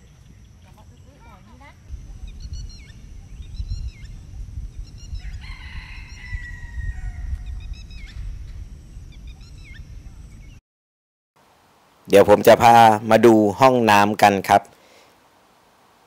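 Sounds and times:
small birds chirping: 0.0s - 10.6s
wind rumble on microphone: 0.0s - 10.6s
rooster crowing: 5.0s - 8.2s.

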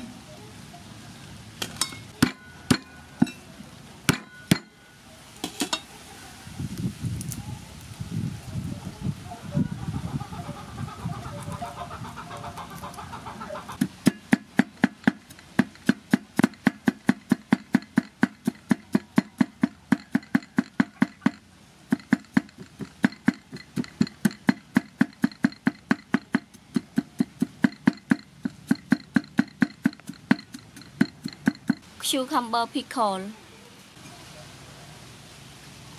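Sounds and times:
cleaver chopping on wooden block: 13.8s - 31.8s.

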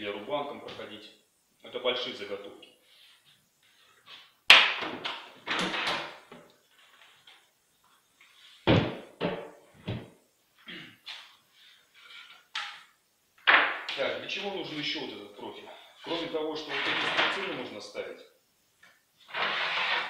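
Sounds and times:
loud thump: 8.6s - 10.1s.

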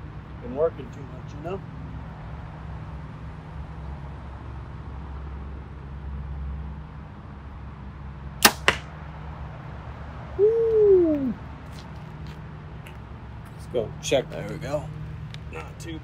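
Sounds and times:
bowstring crack: 8.4s - 8.9s
arrow hitting target: 8.4s - 9.0s
hoot-like call: 10.4s - 11.4s.

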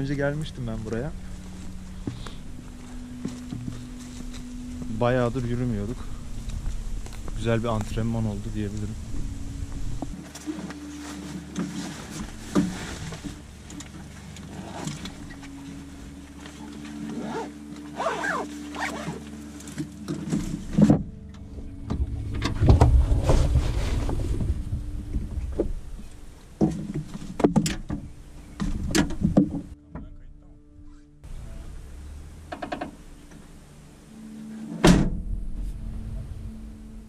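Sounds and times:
bags rumbling against car boot: 0.0s - 21.1s, 21.9s - 29.7s
low wind rumble: 0.0s - 29.8s, 30.4s - 37.0s
outdoor rustle: 0.0s - 29.8s.

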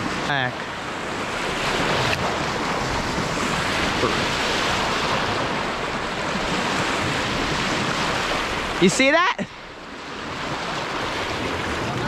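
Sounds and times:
small waves washing onto shore: 0.0s - 12.0s
wind: 0.0s - 12.0s.

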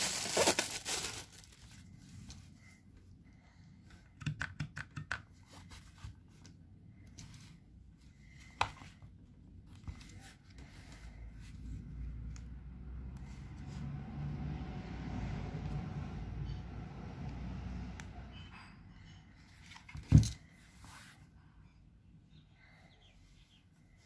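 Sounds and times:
plastic bag crinkling: 0.0s - 1.9s.

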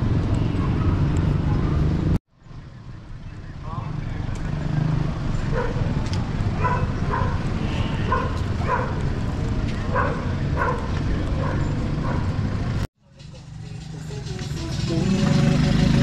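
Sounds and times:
low street rumble: 0.0s - 16.0s
dog barking: 5.5s - 5.9s, 6.6s - 7.4s, 8.0s - 9.0s, 9.9s - 12.3s.

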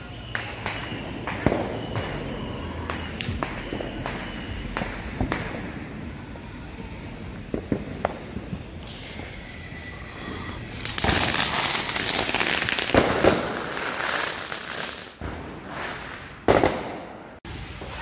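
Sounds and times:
firework hissing and crackling: 0.0s - 18.0s
sharp firework pops: 0.2s - 6.1s, 7.3s - 9.1s, 10.7s - 18.0s.

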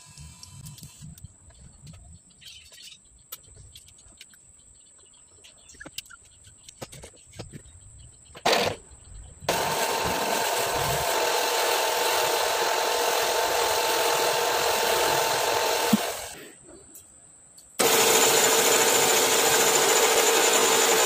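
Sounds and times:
drill grinding honing stones in bore: 9.5s - 16.4s, 17.8s - 21.0s
drill whine: 9.5s - 16.4s, 17.8s - 21.0s.

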